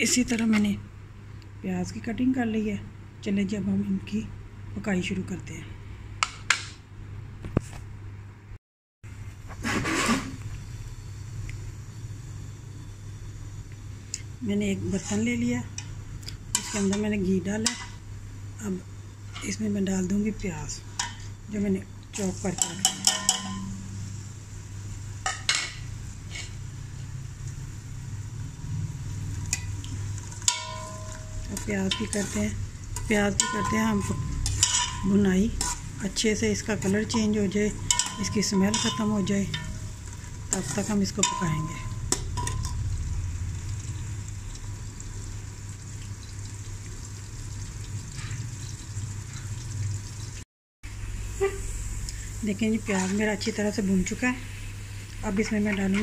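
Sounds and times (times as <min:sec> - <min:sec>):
steady low hum: 0:00.0 - 0:45.8
onions frying in a pot: 0:10.3 - 0:56.0
metal utensil clinking on pot: 0:22.6 - 0:23.7, 0:29.5 - 0:32.4, 0:33.0 - 0:35.8, 0:37.1 - 0:39.8, 0:40.5 - 0:42.8.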